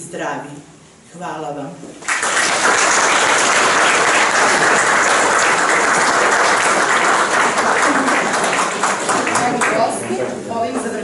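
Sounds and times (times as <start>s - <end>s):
audience applauding: 2.0s - 10.3s.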